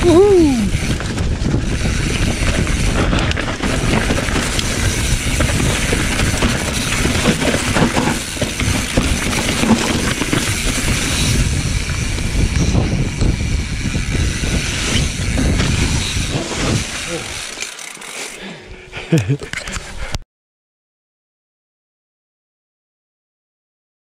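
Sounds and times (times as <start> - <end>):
wind rumbling on microphone: 0.0 - 17.5
bike tyres rolling through leaves: 0.0 - 18.4
bike chain and frame rattle: 0.0 - 20.1.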